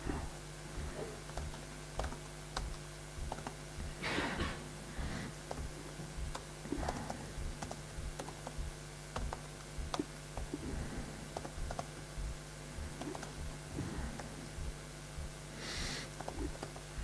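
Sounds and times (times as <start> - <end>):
steady low hum: 0.0 - 17.0
laptop keyboard typing: 1.2 - 3.6, 5.4 - 12.0, 12.8 - 13.4, 16.2 - 17.0.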